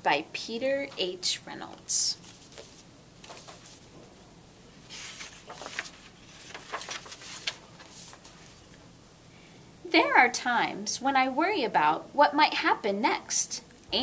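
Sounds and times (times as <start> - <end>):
book pages turning: 2.2 - 3.9, 4.9 - 8.8.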